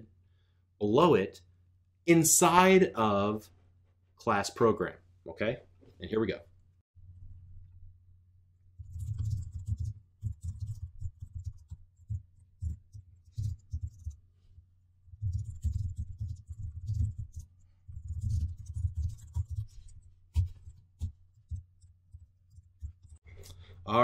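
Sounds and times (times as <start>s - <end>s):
typing on keyboard: 8.8s - 14.2s, 15.2s - 23.2s.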